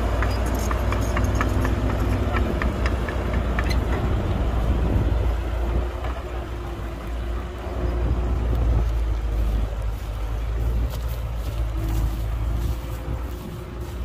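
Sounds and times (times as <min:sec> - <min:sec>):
faint clicks and rattles: 0:00.0 - 0:04.3
heavy diesel machinery droning: 0:00.0 - 0:14.0.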